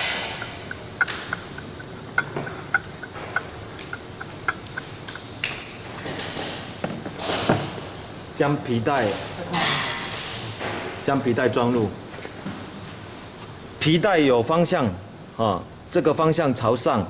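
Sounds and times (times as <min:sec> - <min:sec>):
socket wrench ratcheting: 0:00.0 - 0:07.5.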